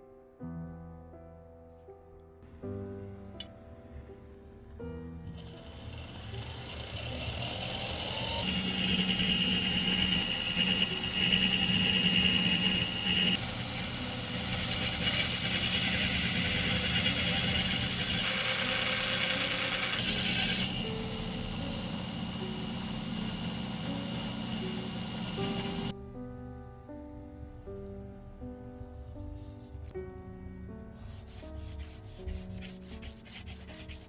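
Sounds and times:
knife grinding on abrasive belt: 0:05.4 - 0:21.0, 0:31.3 - 0:34.0
belt grinder motor whine: 0:05.4 - 0:25.9.

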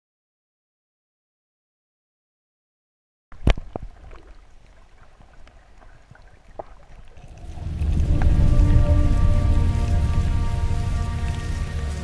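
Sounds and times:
sharp underwater clicks: 0:03.4 - 0:09.0
low underwater rumble: 0:03.6 - 0:12.0.

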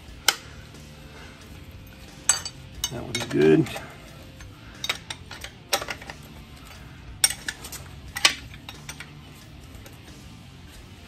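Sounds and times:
metallic clinks of wrench and nuts: 0:01.9 - 0:09.2.

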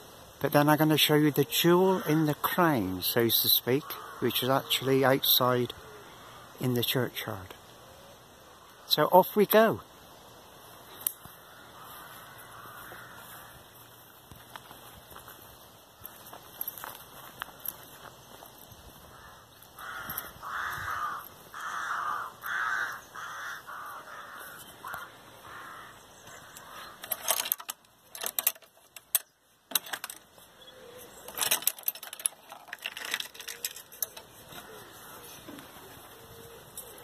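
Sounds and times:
crow cawing: 0:03.8 - 0:04.7, 0:05.7 - 0:06.6, 0:11.2 - 0:13.8, 0:19.0 - 0:27.1, 0:34.4 - 0:36.6
sharp clicking and rattling: 0:26.3 - 0:30.4, 0:31.1 - 0:34.7.

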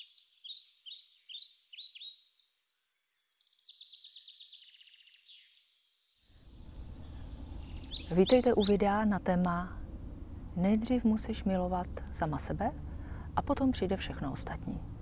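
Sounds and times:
bird trill: 0:00.0 - 0:05.7, 0:06.4 - 0:09.0
birds chirping: 0:00.0 - 0:05.7, 0:06.4 - 0:15.0
low background rumble: 0:06.4 - 0:15.0.

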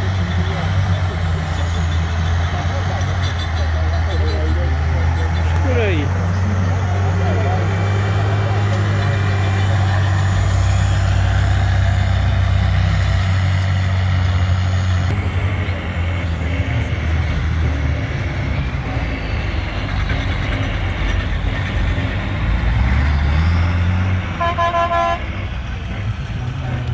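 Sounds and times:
truck engine at low revs: 0:00.0 - 0:26.9
horn beeps: 0:24.4 - 0:25.3.

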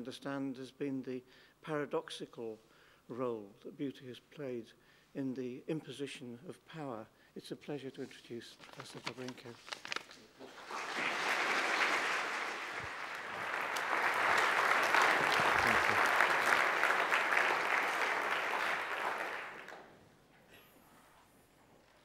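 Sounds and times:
audience applauding: 0:10.4 - 0:19.9.

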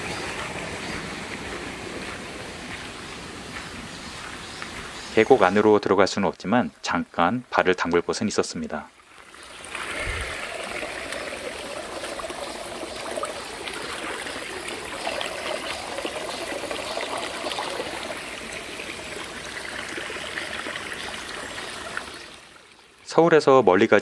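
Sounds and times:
stream splashing over stones: 0:07.9 - 0:23.0.

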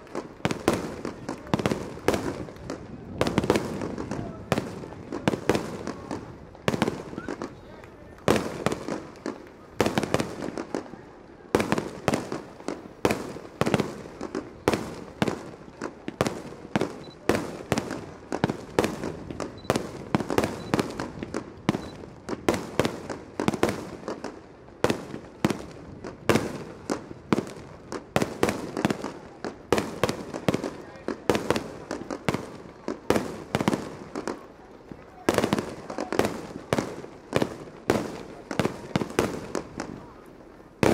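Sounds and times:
firework shells bursting: 0:27.4 - 0:40.9.

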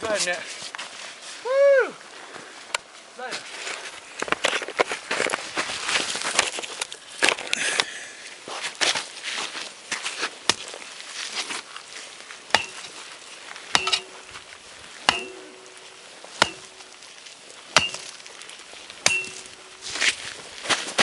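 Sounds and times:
trail tool chopping ground: 0:12.5 - 0:13.1, 0:13.7 - 0:21.0.

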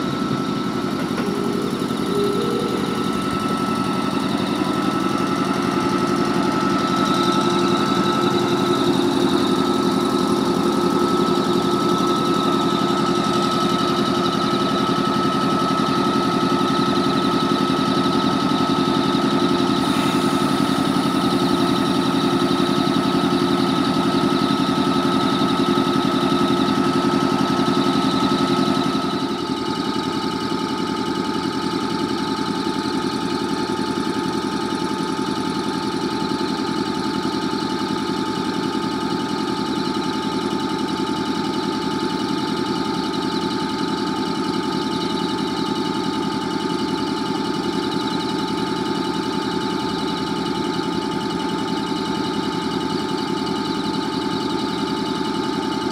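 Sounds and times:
air compressors droning: 0:00.0 - 0:29.9.

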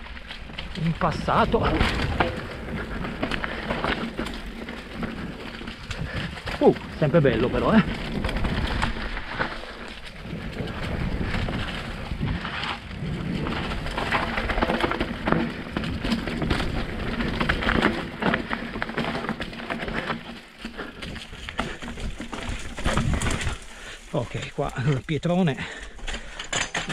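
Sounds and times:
wind rumble on microphone: 0:00.0 - 0:18.8, 0:22.0 - 0:23.7
bike tyres crunching over leaves: 0:00.0 - 0:26.9.

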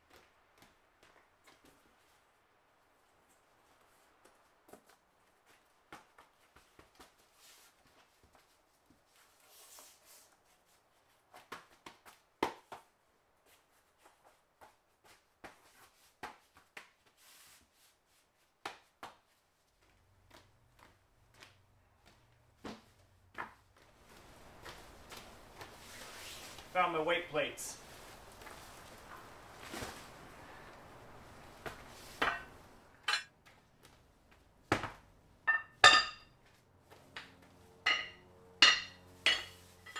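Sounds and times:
floor mat tiles tapping: 0:18.6 - 0:26.0.

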